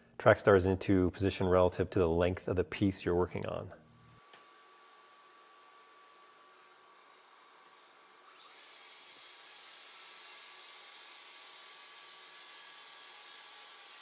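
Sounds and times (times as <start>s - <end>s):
circular saw whining: 4.0s - 14.0s.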